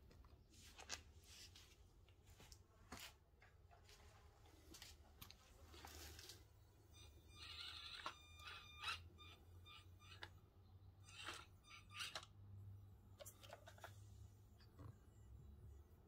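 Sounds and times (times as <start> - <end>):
small electric motor whining: 7.0 - 10.4.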